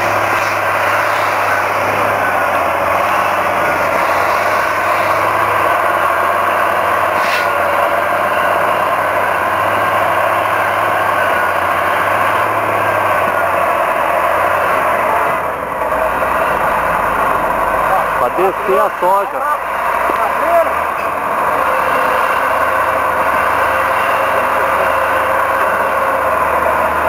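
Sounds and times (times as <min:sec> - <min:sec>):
diesel engines running: 0:00.0 - 0:27.0.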